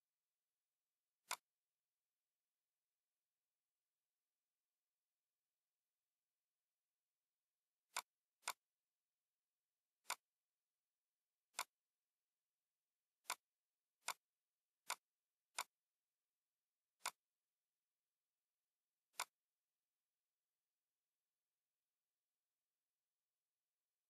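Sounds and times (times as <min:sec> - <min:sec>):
computer mouse clicks: 0:01.2 - 0:01.5, 0:07.9 - 0:08.7, 0:10.0 - 0:10.3, 0:11.5 - 0:11.8, 0:13.2 - 0:15.8, 0:17.0 - 0:17.3, 0:19.1 - 0:19.5.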